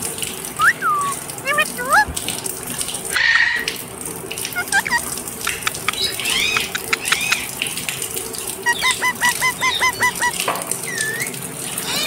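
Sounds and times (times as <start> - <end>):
parakeet short squawks: 4.6 - 7.5, 8.7 - 12.0
parakeet whistled chirps: 4.8 - 7.4, 8.7 - 11.3
sharp clicks: 5.5 - 7.5.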